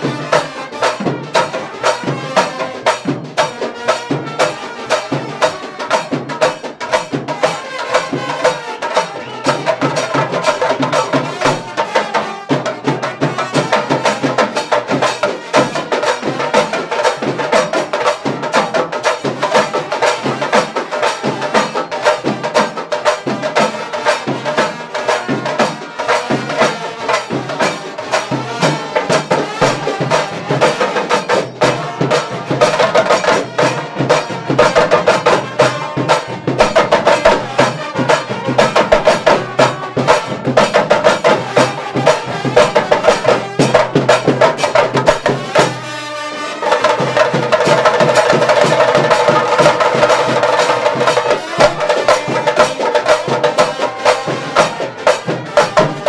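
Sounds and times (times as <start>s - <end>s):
fast drumming: 0.0s - 56.0s
trumpets playing melody: 45.4s - 47.3s.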